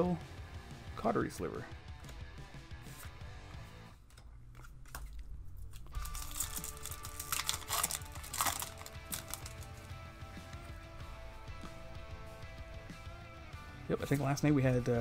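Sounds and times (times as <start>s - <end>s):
quiet background music: 0.0s - 15.0s
foil wrapper tearing and crumpling: 4.6s - 9.9s.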